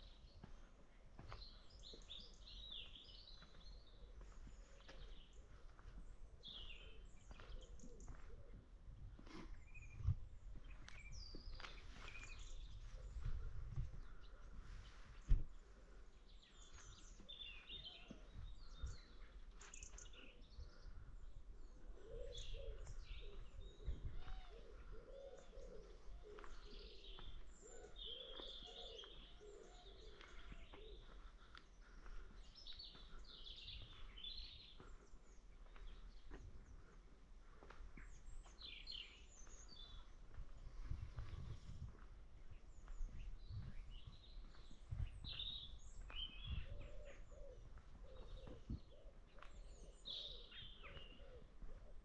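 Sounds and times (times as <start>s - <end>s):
small birds chirping: 0.0s - 52.0s
pigeon cooing: 46.7s - 49.2s.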